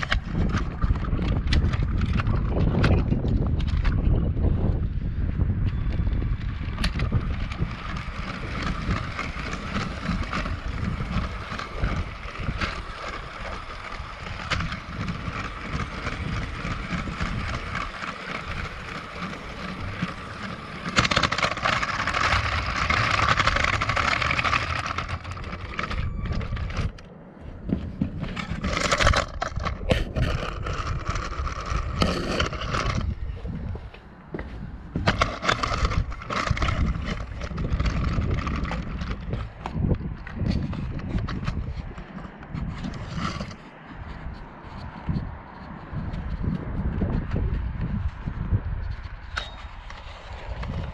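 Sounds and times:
plastic wheels rattling on track: 0.0 - 27.1, 27.7 - 50.9
wind rumble on microphone: 0.0 - 50.9
toy train motor whine: 5.7 - 27.0, 28.4 - 33.2, 35.0 - 39.8.

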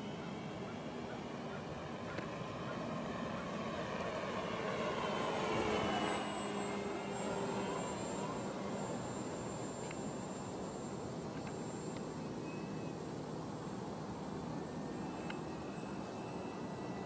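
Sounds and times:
model plane motor whining: 1.6 - 12.9.

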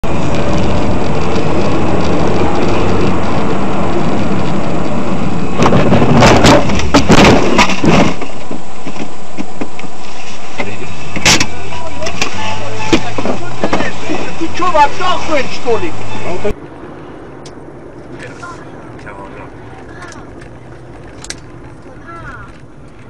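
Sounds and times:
car engine running: 0.0 - 23.0
road noise: 0.0 - 23.0
sharp knocks and clatter: 5.6 - 9.9.

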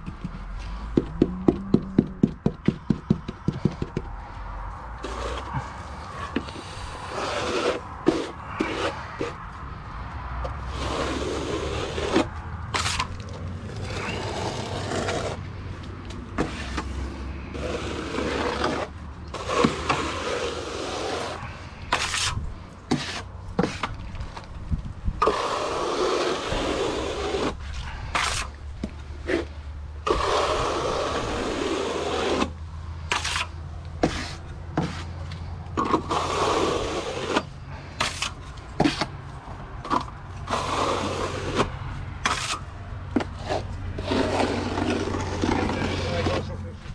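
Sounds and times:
trowel scraping plaster: 5.0 - 9.4, 10.6 - 15.4, 16.4 - 24.4, 25.2 - 35.2, 35.8 - 39.2, 39.9 - 46.7.

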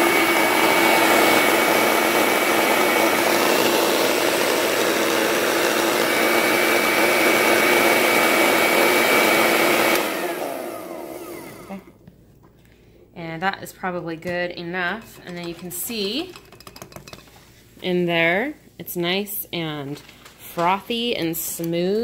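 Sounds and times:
blender motor winding down: 0.0 - 11.9
blender running: 0.0 - 12.0.

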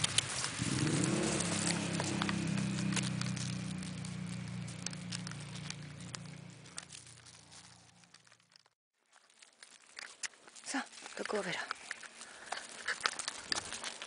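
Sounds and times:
footsteps and paws on gravel: 0.0 - 14.0
low motor hum: 0.2 - 8.2.

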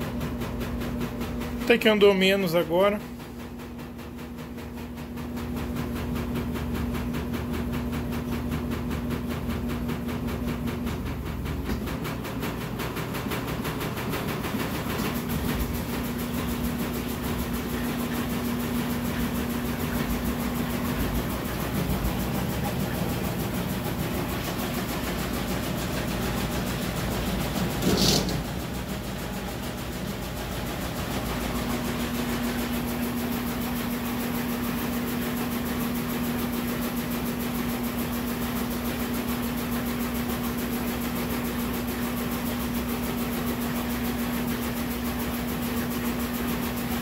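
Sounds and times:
washing machine spinning: 0.0 - 47.0.

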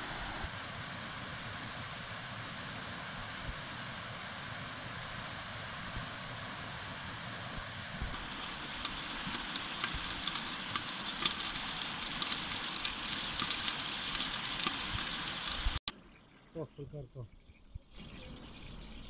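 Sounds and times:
twig fire crackling and popping: 8.1 - 15.9.

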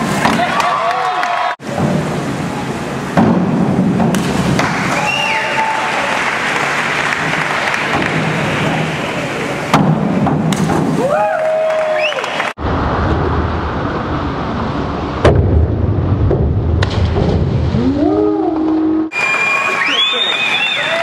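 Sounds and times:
reverberant indoor pool din: 0.0 - 21.0
thud: 15.2 - 17.8.

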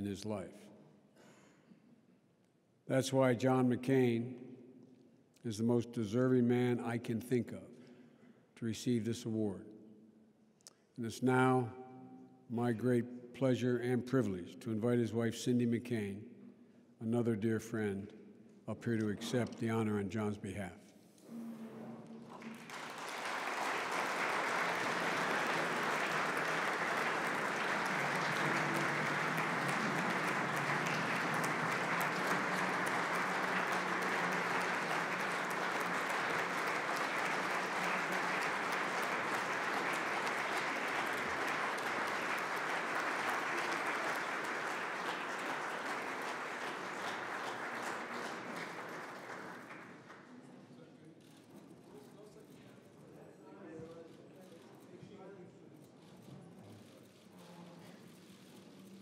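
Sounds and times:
audience applauding: 22.2 - 50.3.

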